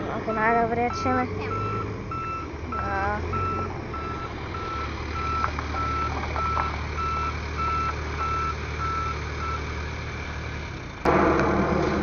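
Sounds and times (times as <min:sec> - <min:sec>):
diesel engine running: 0:00.0 - 0:12.0
reverse alarm beeping: 0:00.3 - 0:09.6.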